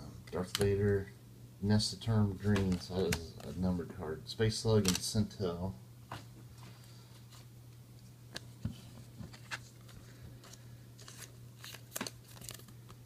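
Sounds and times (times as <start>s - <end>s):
low steady hum: 0.0s - 13.0s
cards clicking and rustling: 0.3s - 1.0s, 2.4s - 3.6s, 4.8s - 5.2s, 8.3s - 13.0s.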